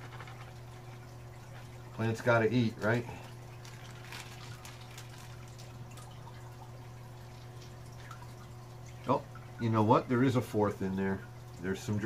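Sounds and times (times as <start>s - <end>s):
water dripping and trickling: 0.0s - 12.0s.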